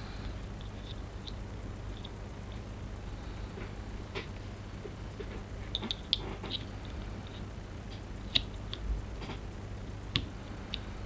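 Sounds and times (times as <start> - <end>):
steady low hum: 0.0 - 11.0
small parts clicking and tapping: 0.6 - 2.7, 3.6 - 9.5.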